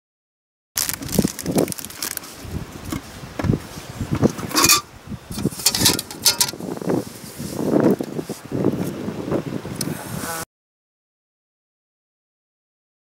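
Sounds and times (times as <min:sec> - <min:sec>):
wind buffeting microphone: 0:00.8 - 0:10.4
metal pots clinking and scraping: 0:04.2 - 0:06.6.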